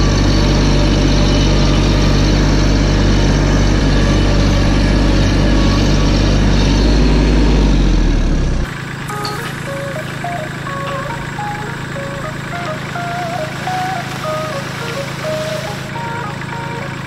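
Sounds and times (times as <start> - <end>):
tractor engine running: 0.0 - 17.0
light music with simple tune: 9.1 - 17.0.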